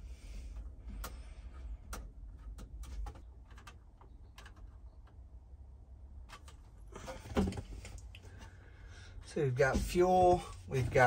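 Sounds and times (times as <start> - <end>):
clicks of wires being handled: 0.6 - 5.2, 6.2 - 8.3.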